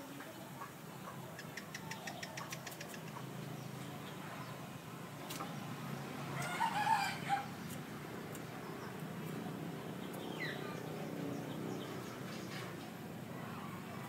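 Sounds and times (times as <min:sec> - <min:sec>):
rooster crowing: 0:06.3 - 0:07.5.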